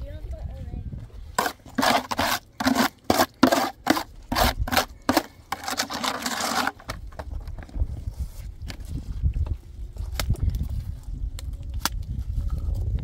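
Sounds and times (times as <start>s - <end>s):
rasping scraping strokes: 1.3s - 7.0s.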